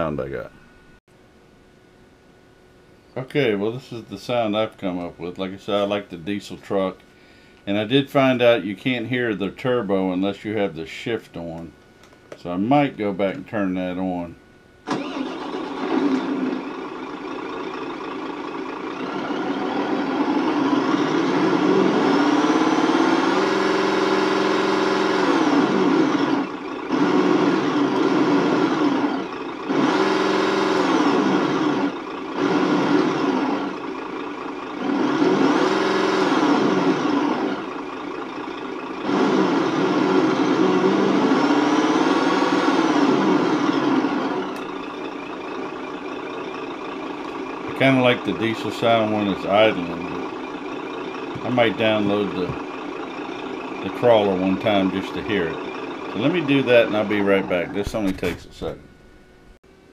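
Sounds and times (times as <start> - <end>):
simulated diesel truck engine revving: 14.9 - 58.8.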